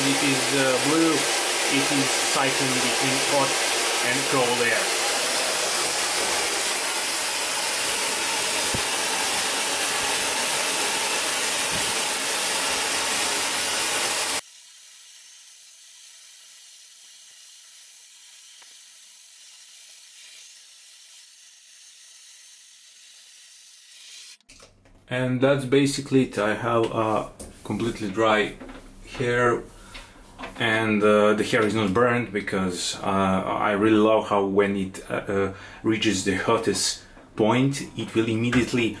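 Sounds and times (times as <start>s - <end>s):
hair dryer blowing air: 0.0s - 14.4s
faint hiss: 0.0s - 21.2s.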